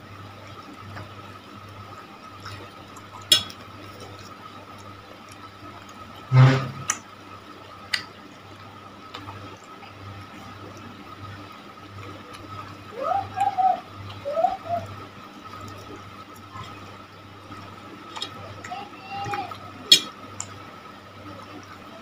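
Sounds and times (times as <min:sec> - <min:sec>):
wet chewing: 0:14.8 - 0:18.7.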